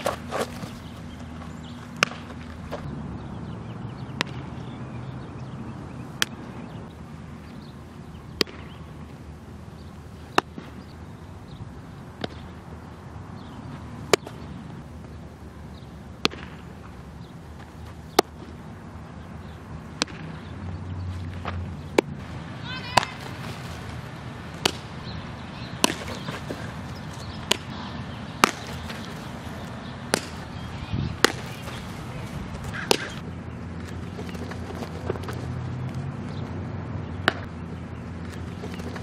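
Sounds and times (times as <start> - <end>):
baseballs popping into gloves: 0.0 - 2.9, 4.2 - 4.5, 6.2 - 6.4, 8.4 - 8.8, 12.2 - 12.5, 16.2 - 18.6, 20.0 - 20.4, 23.0 - 24.9, 25.8 - 30.6, 31.2 - 33.2, 33.8 - 36.4, 37.2 - 37.5, 38.2 - 39.0
low outdoor background: 0.0 - 39.0.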